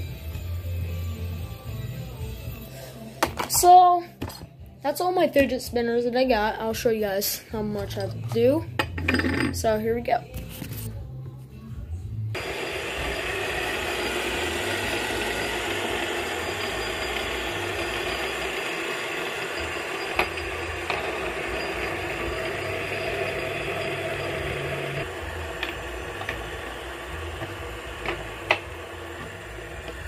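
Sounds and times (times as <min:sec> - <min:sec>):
fidget spinners whirring: 0:12.4 - 0:30.0.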